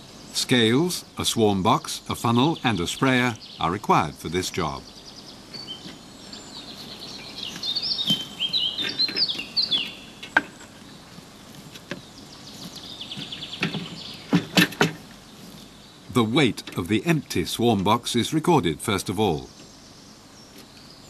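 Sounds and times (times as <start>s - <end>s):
bird trill: 0.0s - 11.2s, 12.0s - 21.0s
birds singing and chirping: 0.0s - 21.0s
sharp knocks: 13.1s - 15.1s.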